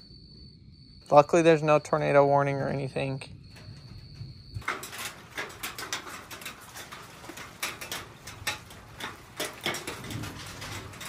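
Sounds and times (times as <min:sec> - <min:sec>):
hail and rain hitting hard surface: 0:04.6 - 0:11.0.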